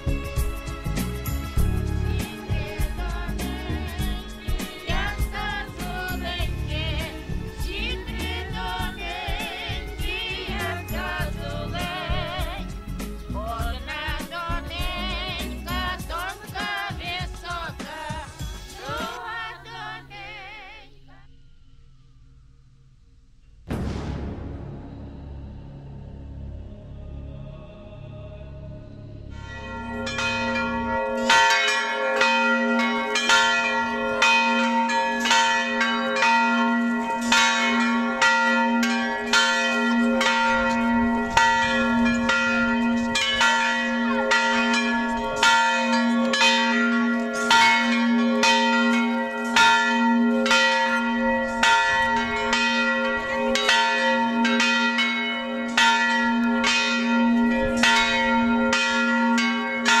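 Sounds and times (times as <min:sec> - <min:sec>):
large bell humming: 0:29.3 - 1:00.0
small church bells ringing: 0:29.3 - 1:00.0.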